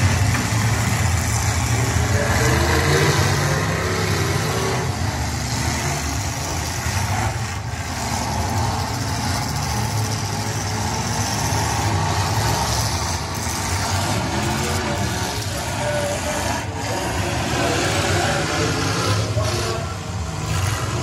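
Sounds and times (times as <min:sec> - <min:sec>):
car engines rumbling: 0:00.0 - 0:21.0.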